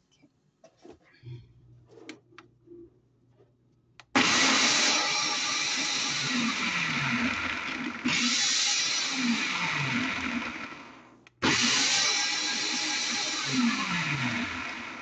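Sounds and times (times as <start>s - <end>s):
blender motor running: 4.2s - 15.0s.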